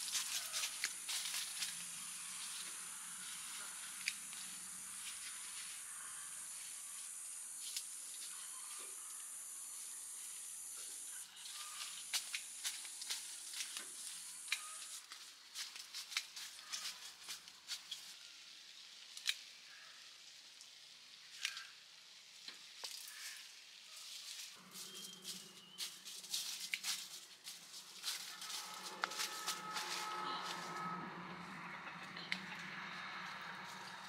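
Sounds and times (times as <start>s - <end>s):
footsteps crackling in dry leaves: 0.0s - 9.2s, 11.0s - 18.9s, 22.8s - 31.6s
low steady hum: 24.5s - 34.0s.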